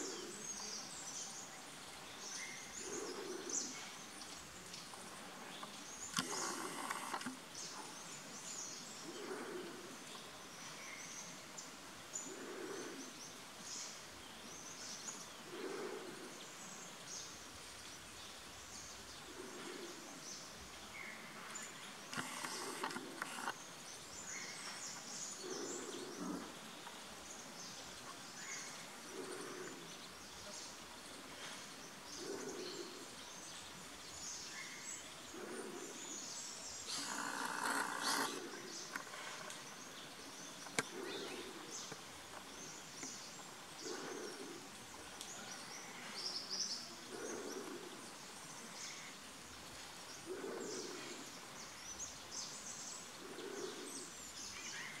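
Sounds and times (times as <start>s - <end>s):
loud noisy bird call: 36.8s - 39.0s.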